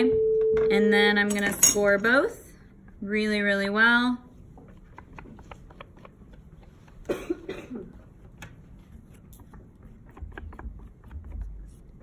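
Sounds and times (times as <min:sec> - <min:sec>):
person coughing: 0:07.0 - 0:08.0
tool scratching clay: 0:08.7 - 0:12.0.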